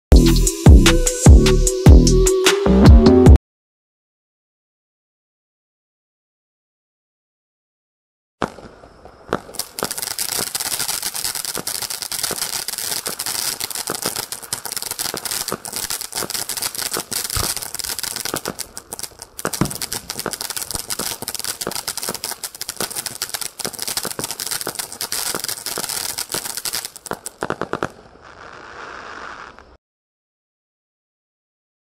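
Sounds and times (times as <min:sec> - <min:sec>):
firework fountain crackling: 0:08.4 - 0:29.8.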